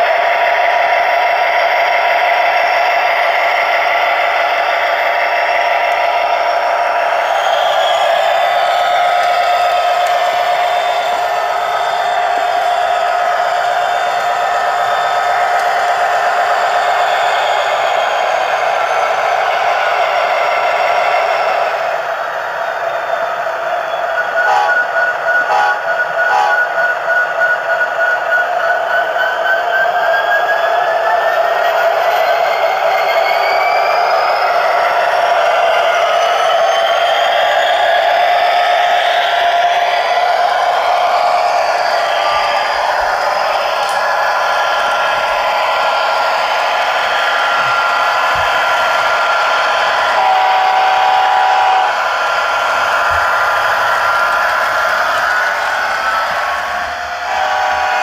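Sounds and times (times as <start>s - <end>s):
model train diesel engine sound: 0.0s - 58.0s
high whine: 24.4s - 26.8s, 39.8s - 58.0s
diesel engine sound from small speaker: 25.5s - 26.7s.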